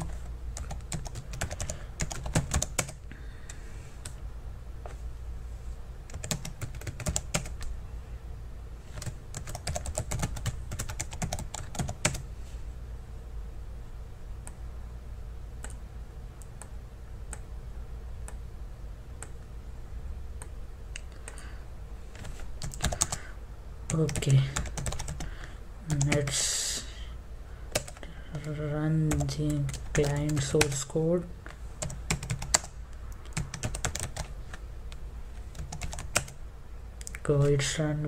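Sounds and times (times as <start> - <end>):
typing on computer keyboard: 0.0 - 3.0, 6.1 - 7.6, 8.9 - 12.2, 22.2 - 23.2, 23.9 - 25.3, 27.7 - 30.8, 31.8 - 32.7, 33.3 - 34.3, 35.5 - 36.4
steady low hum: 0.0 - 38.0.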